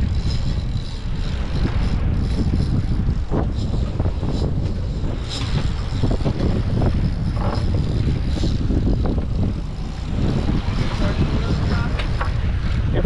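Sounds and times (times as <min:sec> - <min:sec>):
boat engine rumble: 0:00.0 - 0:13.0
wind buffeting microphone: 0:00.0 - 0:13.0.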